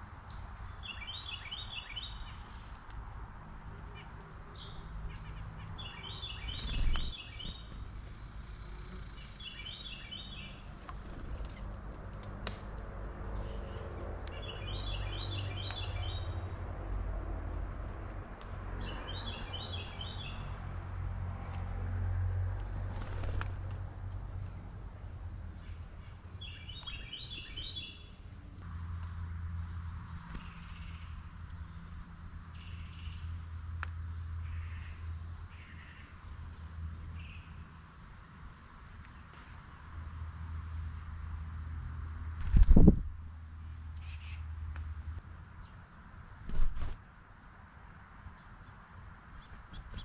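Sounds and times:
songbird singing: 0.1s - 2.8s, 3.8s - 11.8s, 13.1s - 20.7s, 25.4s - 37.8s, 42.4s - 44.9s.

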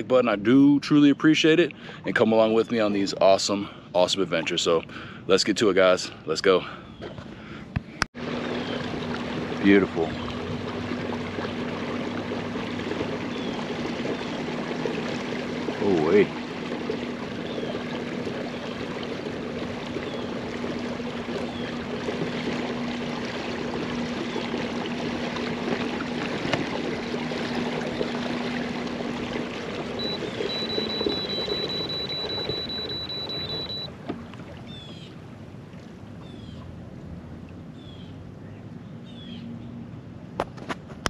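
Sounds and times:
water rushing along hull: 0.0s - 40.4s
electric motor humming: 8.2s - 33.9s
high steady tone: 27.4s - 34.0s.

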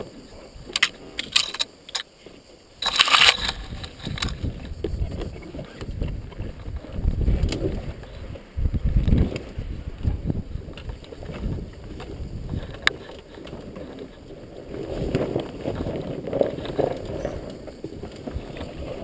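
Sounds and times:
branches scraping against camera: 0.8s - 8.3s.

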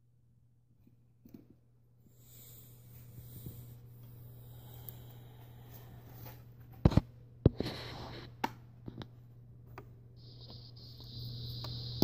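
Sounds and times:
steady low hum: 0.0s - 12.0s
steady high hiss: 10.2s - 12.0s.

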